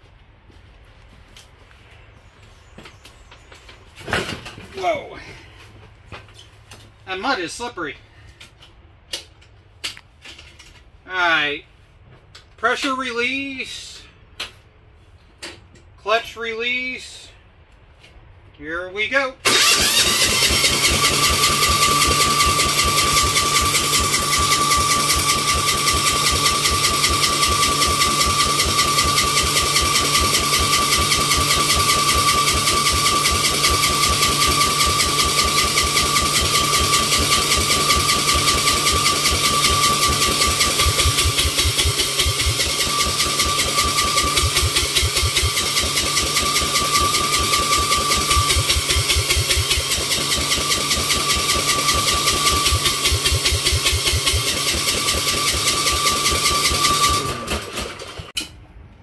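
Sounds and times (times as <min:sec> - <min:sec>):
engine cranking without firing: 0:19.4 - 0:58.6
starter whine: 0:19.4 - 0:58.6.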